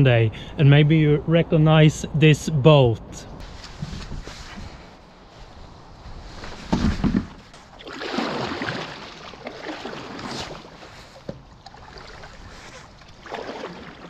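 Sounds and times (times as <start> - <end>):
water and handling sounds: 3.4 - 14.0
board scraping and splashing: 6.2 - 14.0.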